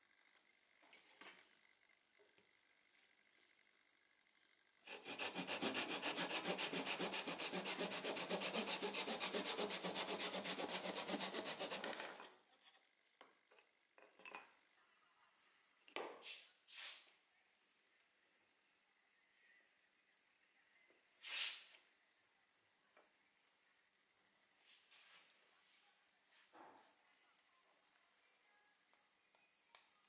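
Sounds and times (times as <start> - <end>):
hand saw cutting wood: 4.9 - 12.2.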